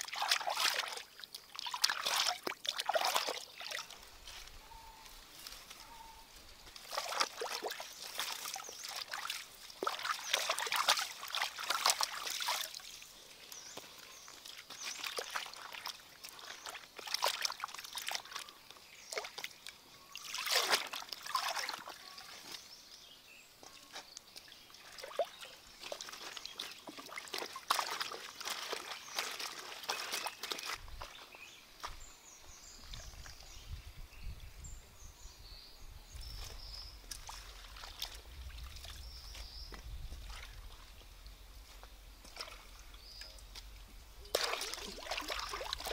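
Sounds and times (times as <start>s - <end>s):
water splashing: 0.0s - 4.2s, 6.7s - 13.1s, 13.7s - 22.7s, 24.4s - 31.1s, 36.4s - 45.9s
faint high chirps: 3.8s - 6.4s.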